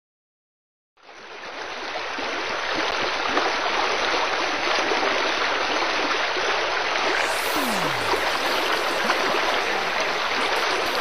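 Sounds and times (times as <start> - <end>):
waterfall rushing: 7.0 - 11.0.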